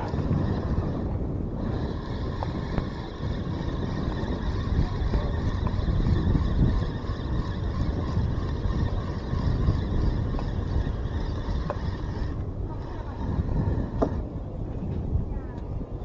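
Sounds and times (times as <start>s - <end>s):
wind buffeting microphone: 0.0s - 16.0s
fishing reel winding: 1.6s - 14.0s.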